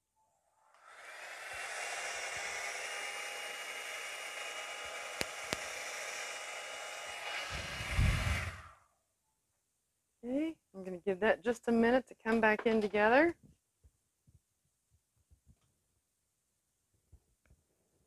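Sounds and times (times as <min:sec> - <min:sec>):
hair dryer blowing with whine: 0:00.8 - 0:08.8.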